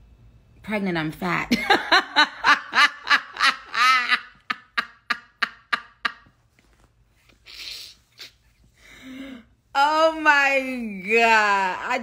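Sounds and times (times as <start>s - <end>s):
woman laughing: 1.5s - 6.4s.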